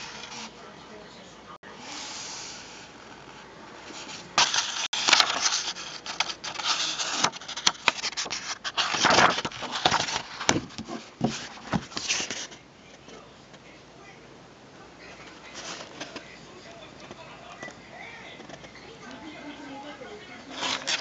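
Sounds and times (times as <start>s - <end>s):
book pages rustling and flicking: 3.3s - 12.6s, 20.5s - 21.0s.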